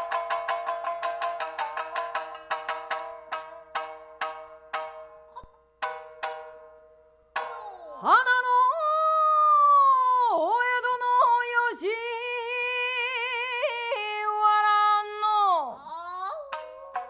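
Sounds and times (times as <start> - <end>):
shamisen plucked notes: 0.0 - 8.8, 15.9 - 17.0
person singing: 7.6 - 17.0.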